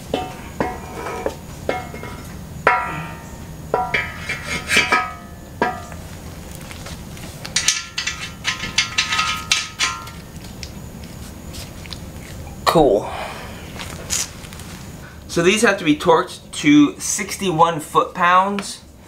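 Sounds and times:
metal nuts and bolts clinking: 0:07.5 - 0:10.4.

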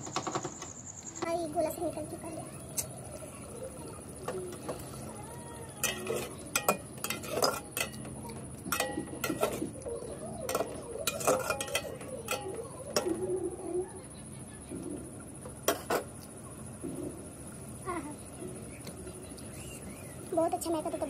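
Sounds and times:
ladle scraping metal pot: 0:05.8 - 0:08.1, 0:08.7 - 0:09.8, 0:10.5 - 0:13.2.

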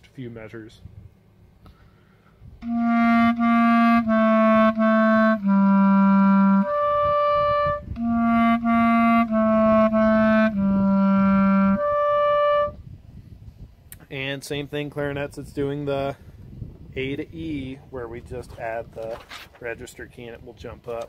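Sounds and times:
solo clarinet playing: 0:02.5 - 0:12.9.

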